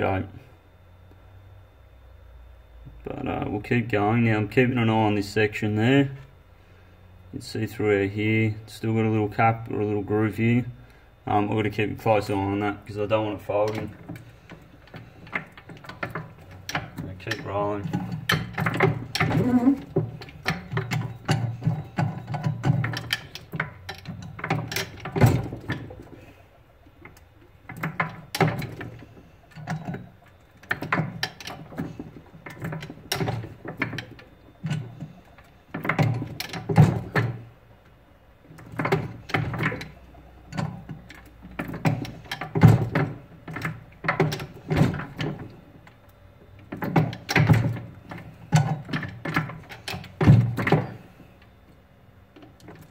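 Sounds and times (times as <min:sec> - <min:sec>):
rolling mill gears clunking: 0:07.4 - 0:52.9.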